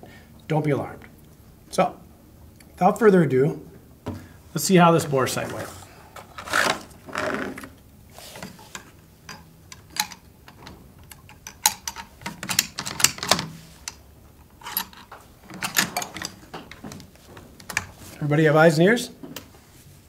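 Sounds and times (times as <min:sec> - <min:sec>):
soft rustles: 0:04.8 - 0:09.0, 0:16.3 - 0:18.3
rifle clicks and knocks: 0:08.4 - 0:18.0.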